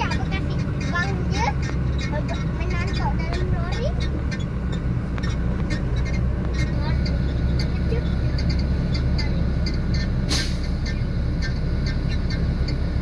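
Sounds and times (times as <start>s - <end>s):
diesel engine idling: 0.0s - 13.0s
air brake hiss: 10.3s - 10.8s.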